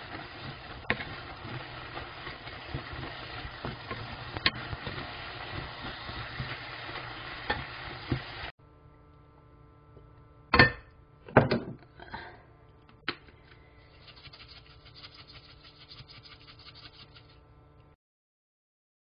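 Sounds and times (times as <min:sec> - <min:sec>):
food sizzling in frying pan: 0:00.0 - 0:08.5.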